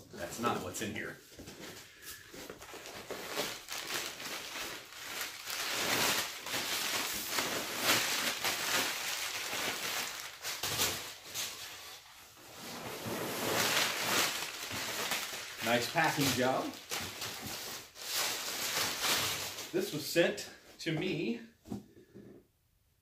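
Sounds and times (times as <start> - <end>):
packing paper crinkling: 1.5 - 11.9, 12.7 - 20.0.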